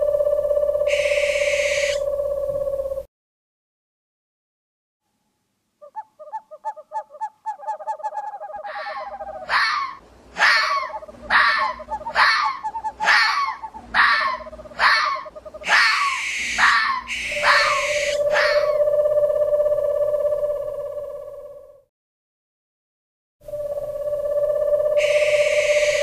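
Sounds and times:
fast pulsing tone: 0:00.0 - 0:03.1, 0:11.0 - 0:21.9, 0:23.5 - 0:26.0
steady held tone: 0:00.0 - 0:03.1, 0:15.5 - 0:21.8, 0:23.4 - 0:26.0
short falling cartoon animal calls: 0:08.6 - 0:18.8
hissing noises: 0:15.6 - 0:18.6.

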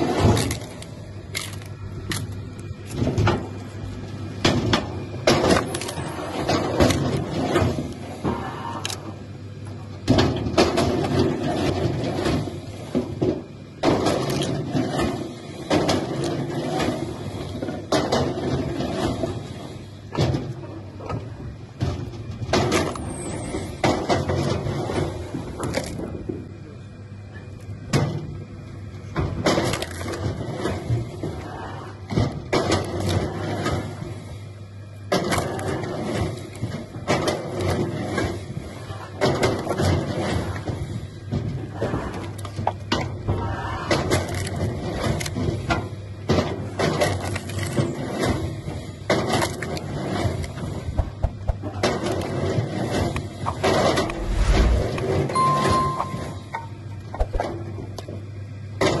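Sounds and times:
low machine noise: 0:00.0 - 0:59.0.

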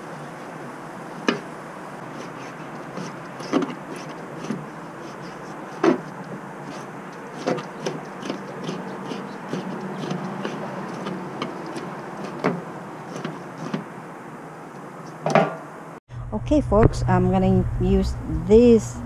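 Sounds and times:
knife chopping on cutting board: 0:05.8 - 0:06.1, 0:06.7 - 0:13.8.

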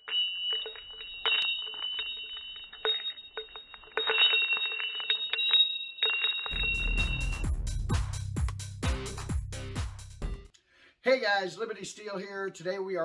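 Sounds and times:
two high tones ringing: 0:00.0 - 0:07.7.

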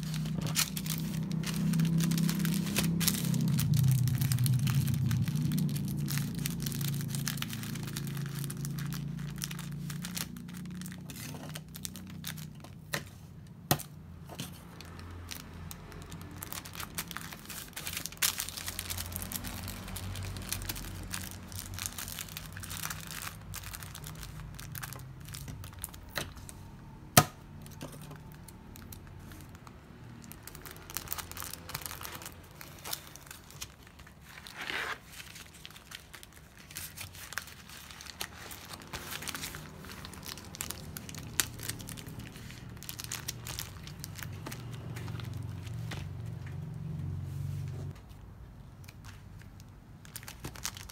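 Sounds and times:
paper rustling and crinkling: 0:00.0 - 0:13.3, 0:30.3 - 0:46.5.

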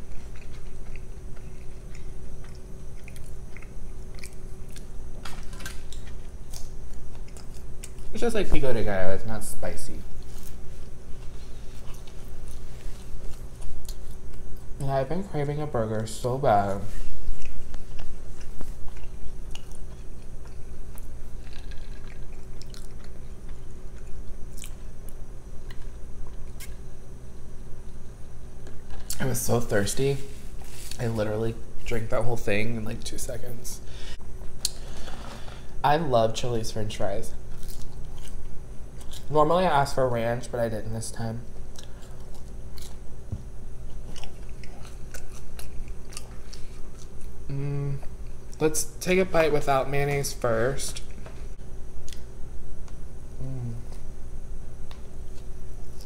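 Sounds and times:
person chewing: 0:00.0 - 0:08.2, 0:10.2 - 0:14.8, 0:17.1 - 0:26.8, 0:37.4 - 0:39.3, 0:41.7 - 0:43.1, 0:43.8 - 0:48.6
low steady hum: 0:00.0 - 0:56.0.

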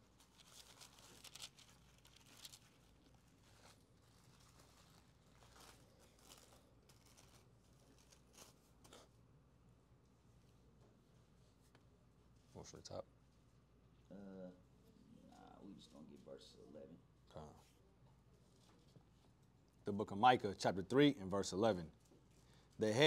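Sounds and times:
thin pages rustling: 0:00.0 - 0:09.1.

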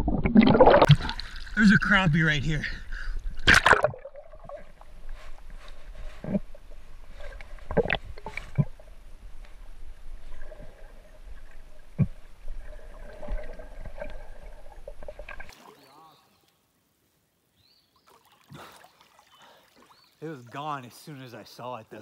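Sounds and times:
underwater clicks and knocks: 0:07.4 - 0:09.6, 0:11.9 - 0:12.2.

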